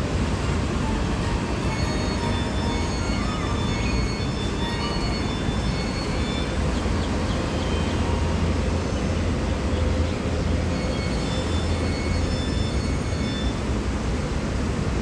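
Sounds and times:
faint short high tones: 0.8s - 8.2s.

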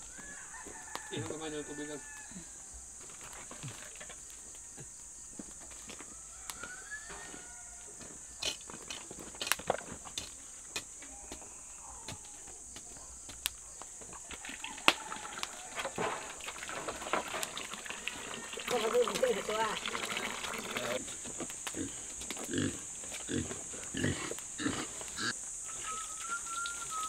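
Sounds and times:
firewood crackling and knocking: 3.0s - 6.0s, 8.4s - 11.0s, 12.7s - 19.4s, 21.0s - 23.7s
hose water splashing into wok: 14.3s - 21.5s
steady high hiss: 20.7s - 27.0s
animal calls: 21.8s - 27.0s.

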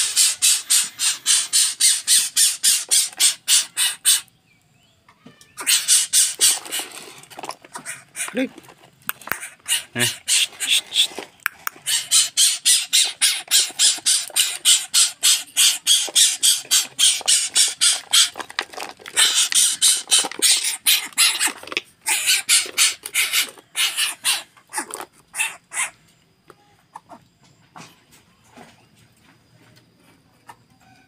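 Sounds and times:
bird giving harsh hissing calls: 0.0s - 4.3s, 5.5s - 8.4s, 9.2s - 18.4s, 19.2s - 26.0s.

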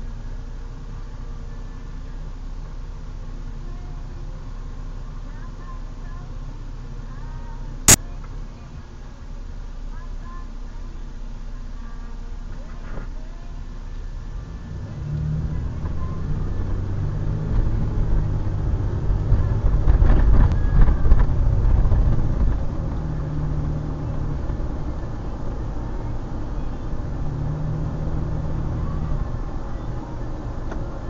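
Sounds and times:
car engine and tyre noise: 12.3s - 31.0s.

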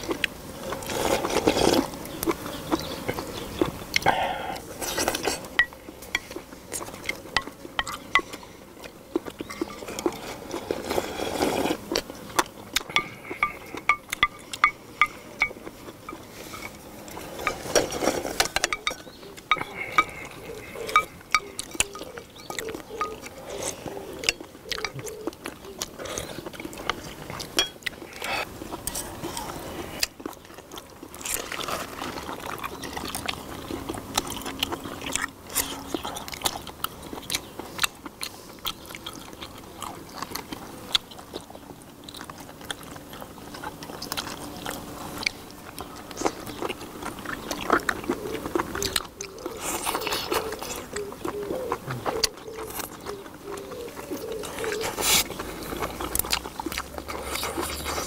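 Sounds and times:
people chewing and sucking: 0.0s - 58.0s
chopsticks and shells clicking: 20.9s - 23.3s.

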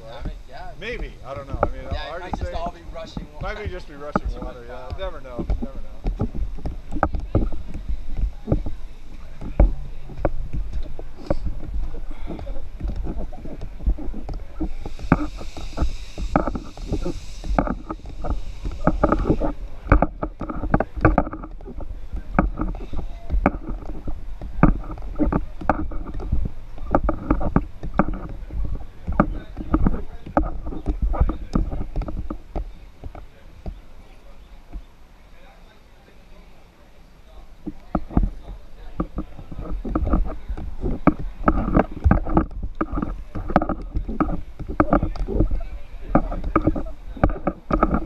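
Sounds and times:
camera housing knocking against gear: 9.4s - 33.8s, 39.0s - 48.0s.

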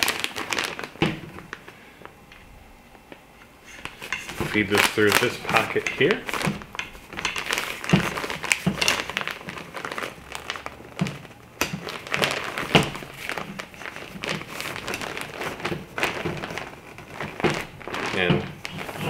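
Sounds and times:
reflector fabric rustling: 0.0s - 19.0s.

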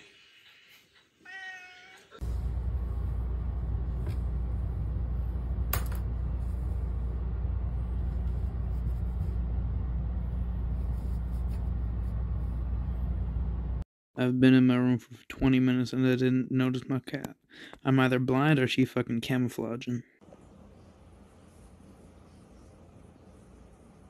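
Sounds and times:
cat meowing: 1.2s - 2.2s
steady low rumble: 2.2s - 13.8s.

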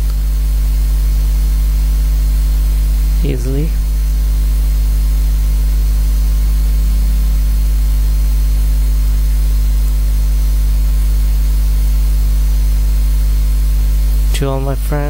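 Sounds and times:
loud low hum: 0.0s - 15.0s
steady higher tones: 0.4s - 9.4s, 14.1s - 15.0s.

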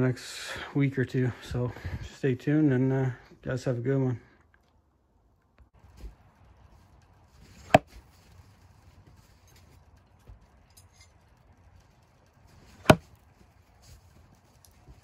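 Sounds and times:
knife hitting wooden log: 7.7s - 7.9s, 12.8s - 13.0s.

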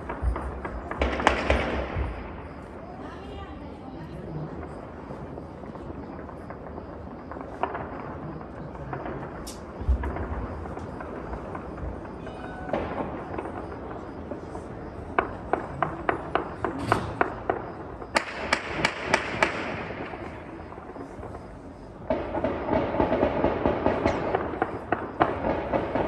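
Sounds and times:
gunshots echoing: 0.0s - 2.6s, 12.0s - 20.7s
dense crackle of many shots: 0.0s - 26.0s.

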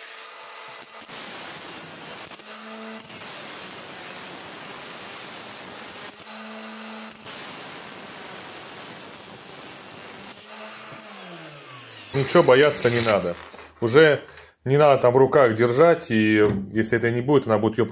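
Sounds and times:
angle grinder cutting steel: 0.0s - 13.6s.

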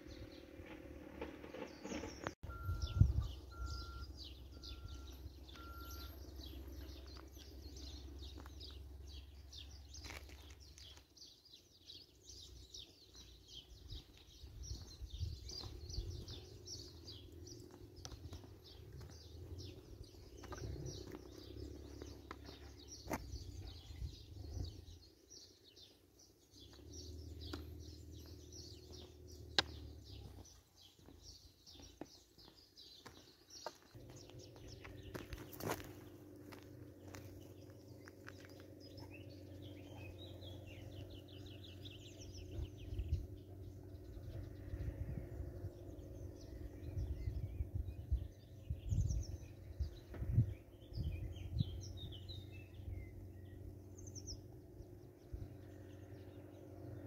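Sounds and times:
birds chirping: 0.0s - 57.0s
wind buffeting microphone: 1.7s - 5.8s, 13.5s - 25.9s, 38.7s - 56.3s.

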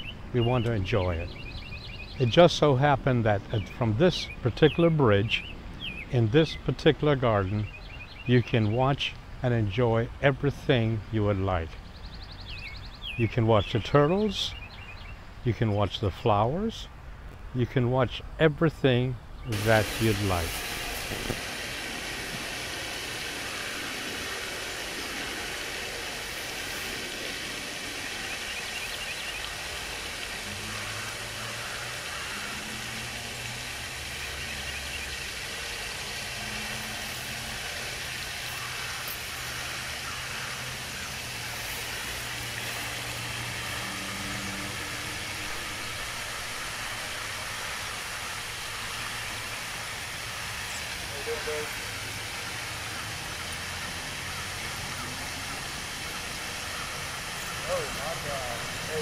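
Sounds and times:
even hiss: 17.6s - 59.0s.

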